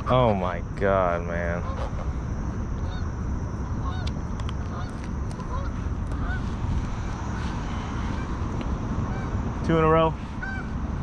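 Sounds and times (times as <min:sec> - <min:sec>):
low rumble: 0:00.0 - 0:11.0
geese honking: 0:01.4 - 0:02.2, 0:02.8 - 0:10.8.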